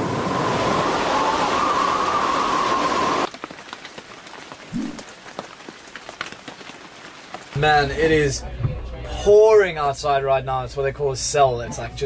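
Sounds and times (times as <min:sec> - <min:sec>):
heavy rain pouring: 0:00.0 - 0:08.6
rain running on windscreen: 0:00.0 - 0:09.8
raindrops tapping: 0:03.2 - 0:08.4.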